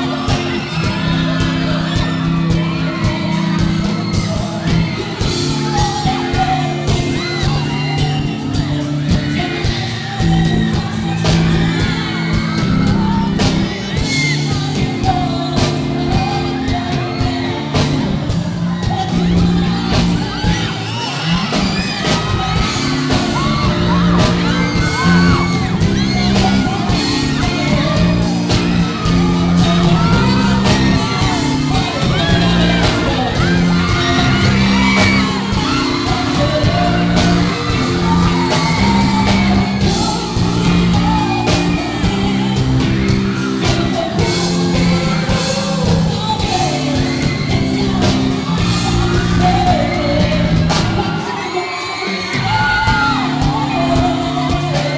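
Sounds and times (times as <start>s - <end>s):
audience yelling and whooping: 0.0s - 54.9s
instrumental accompaniment with beat: 0.0s - 54.9s
man singing into microphone: 18.7s - 54.9s.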